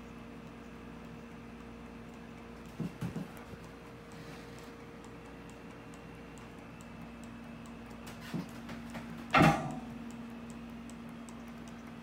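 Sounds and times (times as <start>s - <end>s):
small engine humming and ticking: 10.0s - 12.0s.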